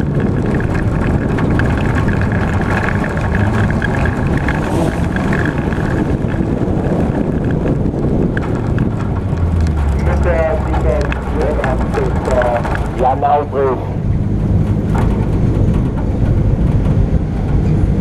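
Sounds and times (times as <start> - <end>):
car engine running under load: 0.0 - 18.0
tyre and wind noise: 0.0 - 18.0.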